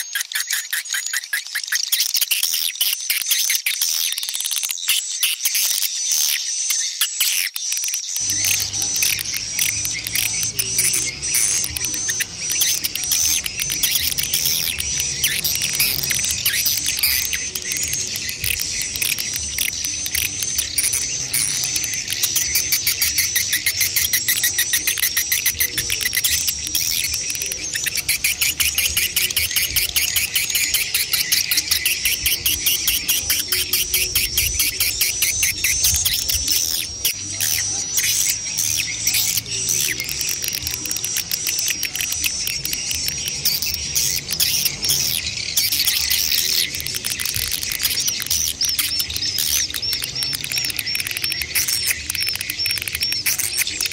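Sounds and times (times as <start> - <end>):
high wavering bird twitter: 0.0 - 53.9
rapid clicking trills: 0.0 - 53.9.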